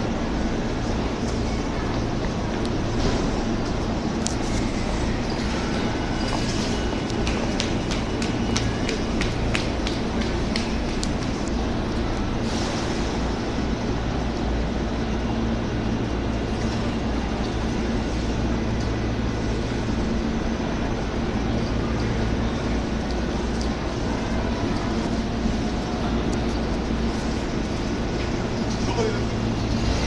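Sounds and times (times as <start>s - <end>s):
electric trains humming: 0.0s - 30.0s.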